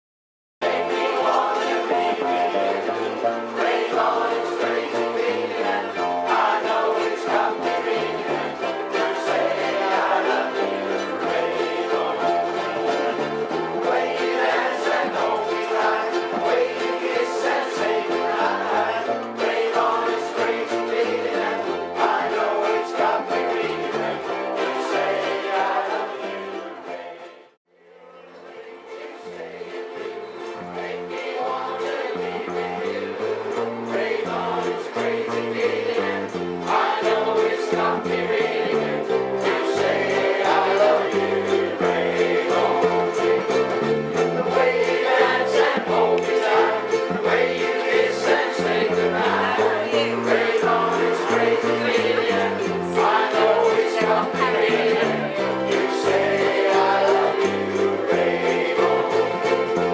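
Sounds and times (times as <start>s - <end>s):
ukulele band playing: 0.6s - 27.6s, 28.4s - 59.9s.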